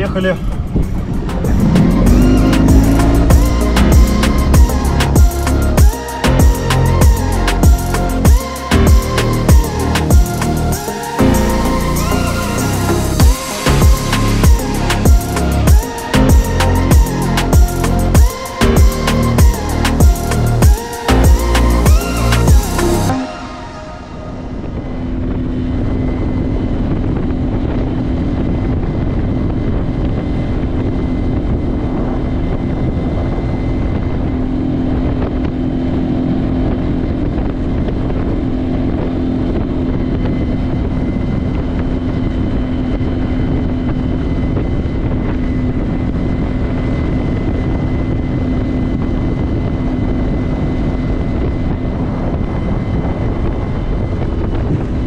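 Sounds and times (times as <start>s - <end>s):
wind noise on microphone: 0.0s - 55.0s
outboard motor running: 0.6s - 23.2s.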